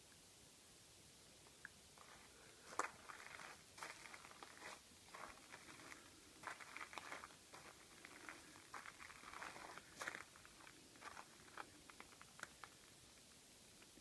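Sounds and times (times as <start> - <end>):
footsteps on gravel: 2.0 - 12.2.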